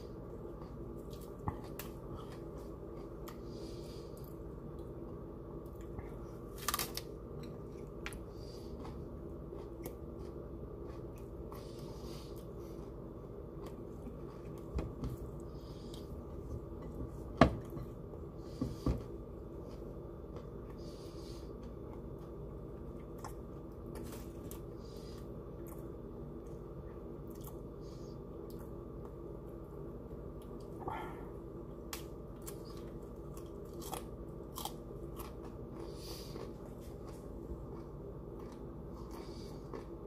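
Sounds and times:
low background hum: 0:00.0 - 0:40.0
broccoli crunching: 0:05.7 - 0:17.0, 0:31.9 - 0:40.0.

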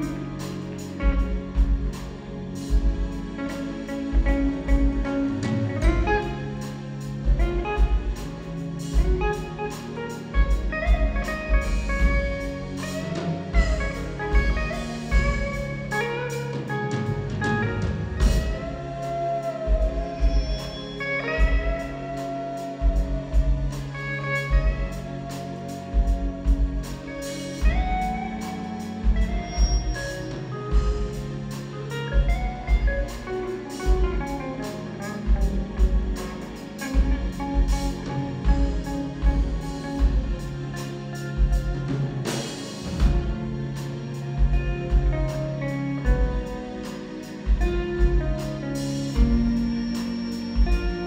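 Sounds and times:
bass and drums beat: 0:00.0 - 0:51.0
electric guitar solo: 0:09.0 - 0:42.2.

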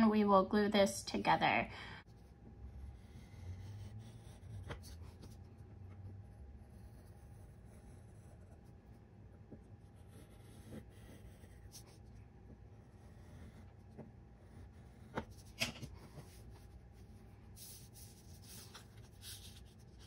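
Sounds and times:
pen scraping on card: 0:02.8 - 0:05.4, 0:09.8 - 0:12.0, 0:12.8 - 0:16.7, 0:17.5 - 0:20.0.

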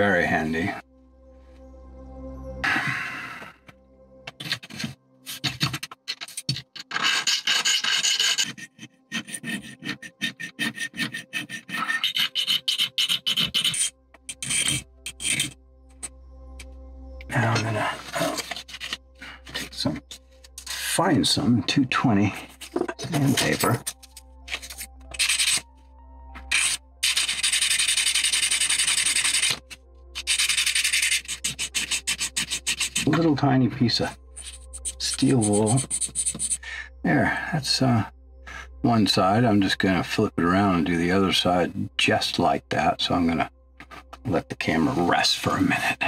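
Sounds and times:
sandpaper rubbing on metal: 0:04.4 - 0:15.6, 0:24.6 - 0:25.6, 0:26.5 - 0:29.6, 0:30.2 - 0:33.1, 0:34.4 - 0:36.6
hand file rasping on brass: 0:06.9 - 0:15.6, 0:25.1 - 0:25.6, 0:26.5 - 0:29.6, 0:30.2 - 0:33.1.

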